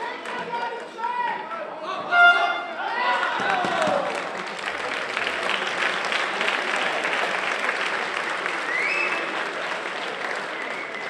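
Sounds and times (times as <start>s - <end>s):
crowd applauding: 2.9s - 11.0s.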